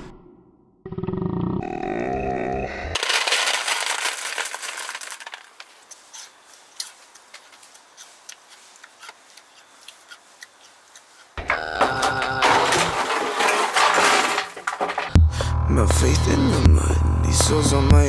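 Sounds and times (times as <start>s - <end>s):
cereal pouring into a bowl: 3.0s - 5.6s
music with low beat: 15.2s - 18.0s.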